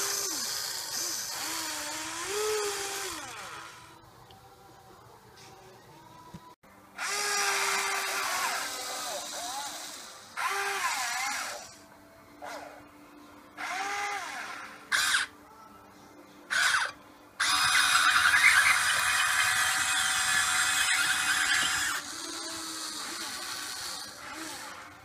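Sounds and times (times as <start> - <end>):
toy excavator motors whining: 0.0 - 4.0, 7.0 - 11.8, 13.6 - 15.3, 16.5 - 25.0.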